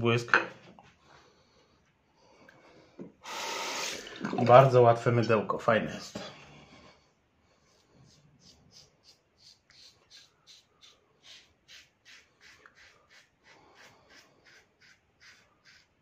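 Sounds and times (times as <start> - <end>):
razor scraping stubble: 8.1 - 16.0.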